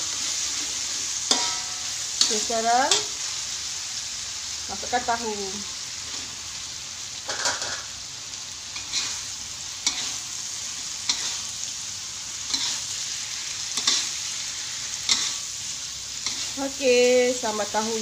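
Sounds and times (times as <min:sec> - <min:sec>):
metal spatula scraping a wok: 0:00.0 - 0:03.1, 0:08.8 - 0:10.4, 0:11.0 - 0:11.5, 0:12.4 - 0:15.5, 0:16.2 - 0:16.8
chili paste sizzling in a wok: 0:00.0 - 0:18.0.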